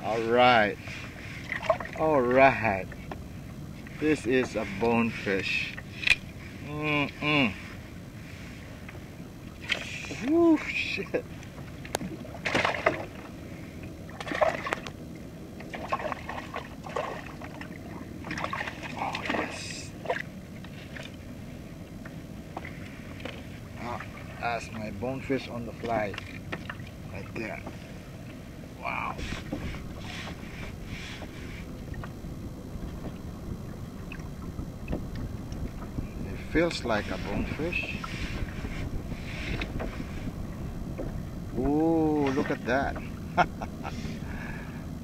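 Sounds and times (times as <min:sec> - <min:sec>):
water splashing beside kayak: 0:00.0 - 0:45.0
wind buffeting microphone: 0:26.9 - 0:45.0.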